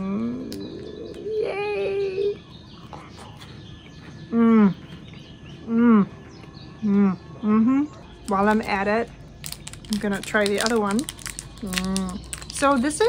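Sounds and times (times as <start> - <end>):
wrapper rustling: 8.3 - 13.0.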